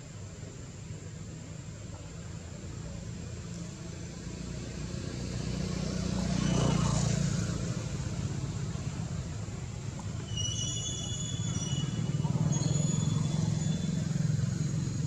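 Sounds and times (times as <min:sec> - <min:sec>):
vehicle passing by: 0:04.1 - 0:10.0, 0:11.8 - 0:15.0.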